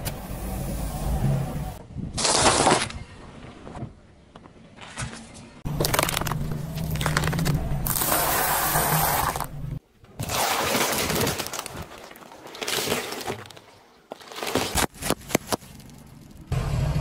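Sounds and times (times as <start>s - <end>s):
eggshells crunching and cracking: 5.6s - 8.4s, 10.4s - 16.5s
dry pasta crunching under tyre: 5.6s - 9.5s, 10.3s - 16.5s.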